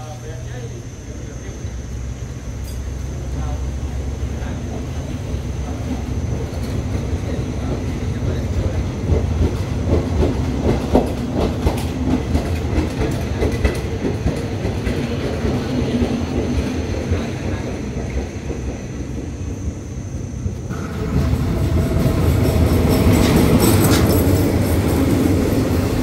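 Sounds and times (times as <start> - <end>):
train rumbling past: 0.0 - 26.0
wheels clicking over rail joints: 6.3 - 17.3, 20.7 - 26.0.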